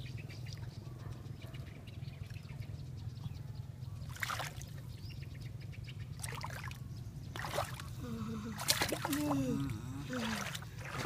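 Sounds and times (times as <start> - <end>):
steady low hum: 0.0 - 11.0
hands splashing in shallow water: 7.4 - 7.9, 8.5 - 9.4, 10.0 - 11.0.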